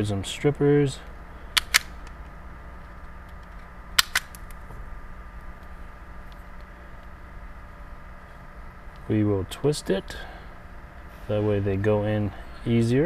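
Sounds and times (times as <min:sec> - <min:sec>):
wire stripper clicking: 0:01.6 - 0:04.6.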